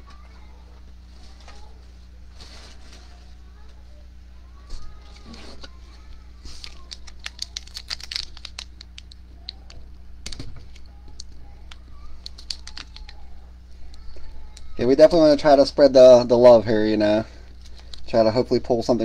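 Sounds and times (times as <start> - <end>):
plastic wrapper crinkling: 5.0 - 14.7, 17.5 - 18.1.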